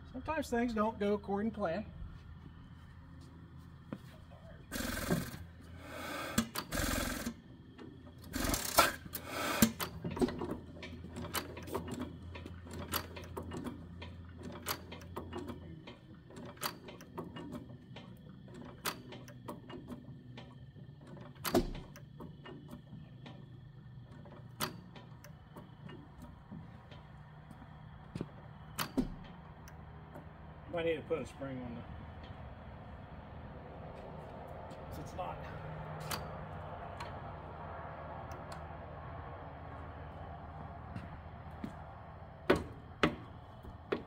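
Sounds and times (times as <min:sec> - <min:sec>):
engine coasting down: 0:00.0 - 0:44.0
loud engine bursts: 0:04.6 - 0:07.5, 0:08.2 - 0:10.0
sharp mechanical clicks: 0:08.2 - 0:10.0.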